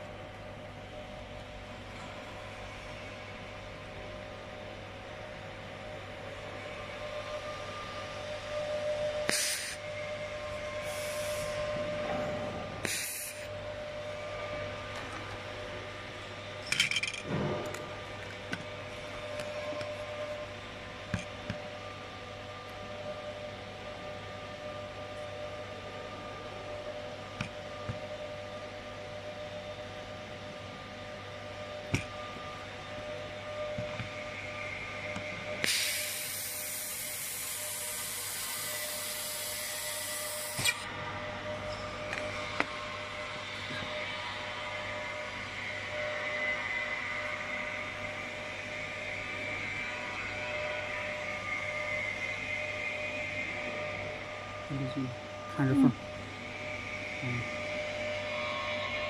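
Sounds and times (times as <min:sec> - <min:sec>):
laser welding machine hum: 0:00.0 - 0:59.0
laser welder hissing: 0:09.3 - 0:09.8, 0:10.8 - 0:11.6, 0:12.8 - 0:13.5, 0:35.6 - 0:40.8.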